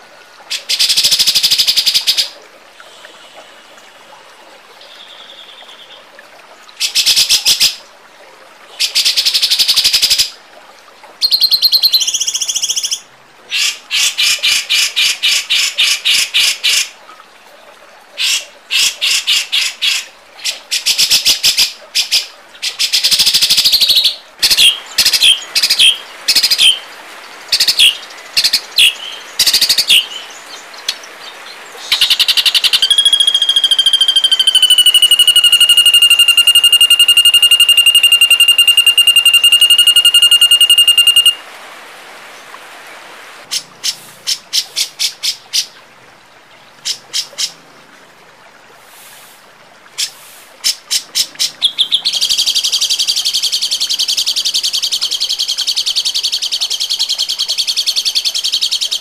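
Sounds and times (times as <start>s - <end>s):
songbird rapid high notes: 31.8s - 41.4s.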